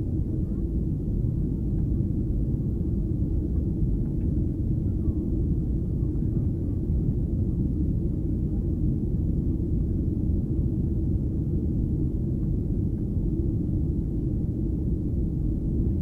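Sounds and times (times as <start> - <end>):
airplane cabin rumble: 0.0 - 16.0.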